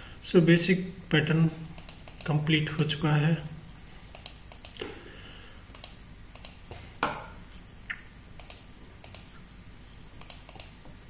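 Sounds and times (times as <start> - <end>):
mouse and keyboard clicks: 5.7 - 6.6, 10.2 - 10.7.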